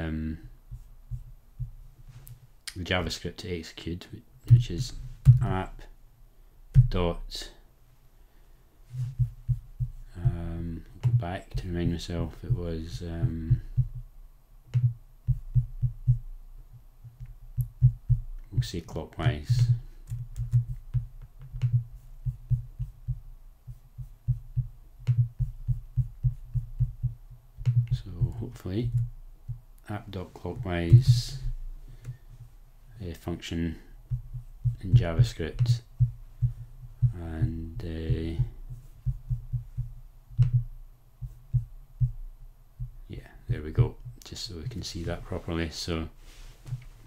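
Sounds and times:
keyboard typing: 0:20.0 - 0:21.8.

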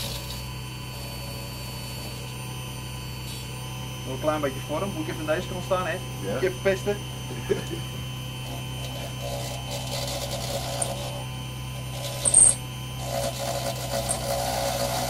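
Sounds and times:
knife scraping spinning wood: 0:00.0 - 0:02.4, 0:07.3 - 0:15.0
lathe humming: 0:00.0 - 0:15.0.

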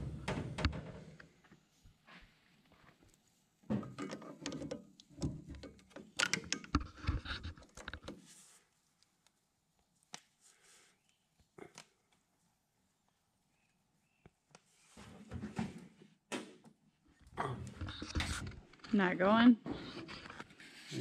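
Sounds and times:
grease gun coupler clicking and scraping: 0:04.0 - 0:08.2.

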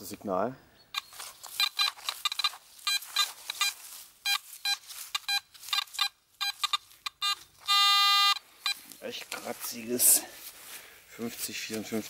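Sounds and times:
metal detector beeps: 0:00.9 - 0:08.8.

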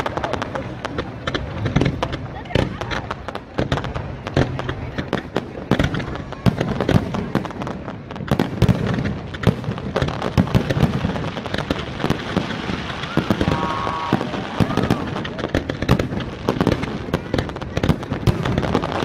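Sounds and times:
fireworks bursting: 0:00.0 - 0:19.0.

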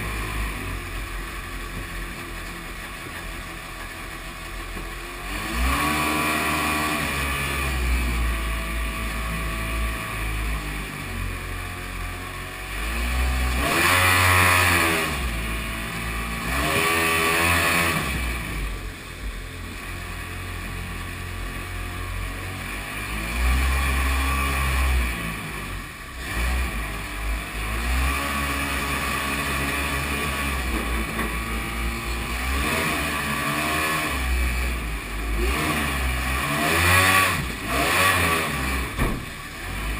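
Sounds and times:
jet boat engine revving: 0:00.0 - 0:39.9.

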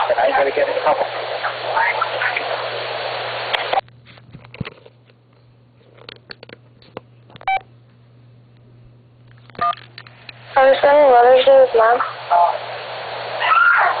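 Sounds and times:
loud telephone line hiss: 0:00.0 - 0:03.8, 0:09.5 - 0:14.0
low steady hum: 0:00.0 - 0:14.0.

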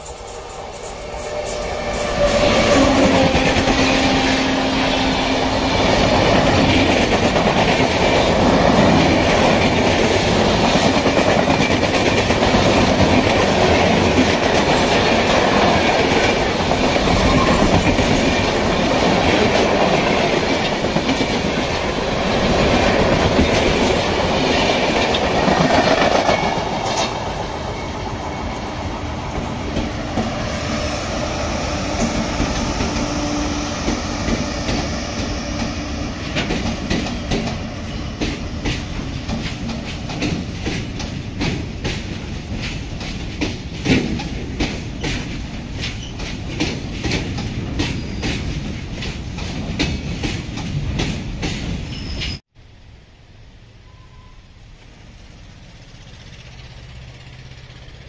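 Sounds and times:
wheels clacking over rail joints: 0:00.0 - 0:52.4
train passing at high speed: 0:00.0 - 0:58.0.

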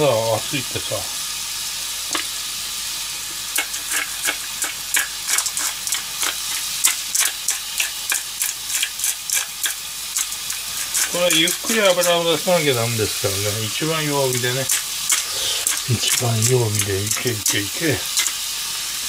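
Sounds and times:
meat sizzling in a frying pan: 0:00.0 - 0:19.0
pepper mill grinding clicks: 0:03.6 - 0:12.2, 0:14.2 - 0:18.4.

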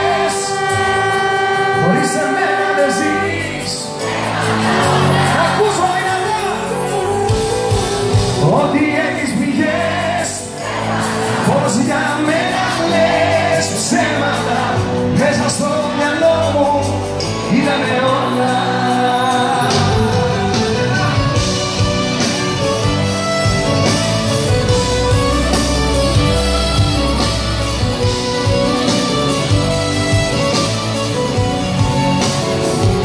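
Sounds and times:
man singing into a microphone: 0:00.0 - 0:04.1, 0:05.0 - 0:10.6, 0:11.4 - 0:21.4.

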